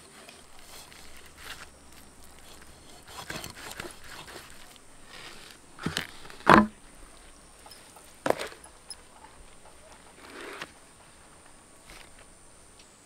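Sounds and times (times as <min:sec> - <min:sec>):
knife scraping fish skin: 0:00.4 - 0:06.5.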